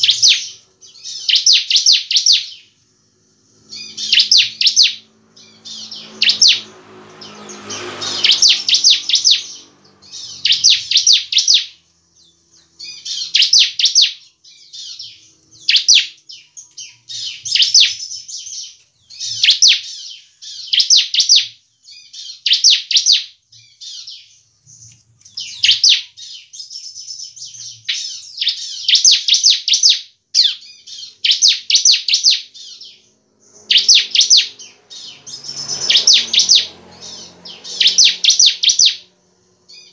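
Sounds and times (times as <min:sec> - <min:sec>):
bird singing clicking trills: 0:00.0 - 0:02.8, 0:03.6 - 0:39.9.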